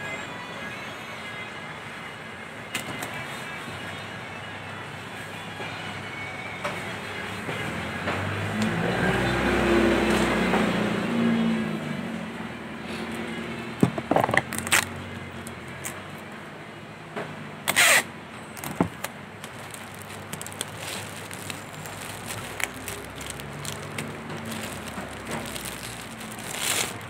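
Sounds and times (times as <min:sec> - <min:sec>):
cellophane crinkling: 0:14.3 - 0:14.9, 0:18.6 - 0:27.0.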